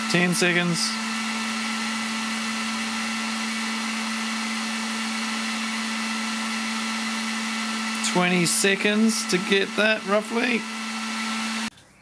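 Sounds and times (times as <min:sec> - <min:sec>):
heat gun running: 0:00.0 - 0:11.7.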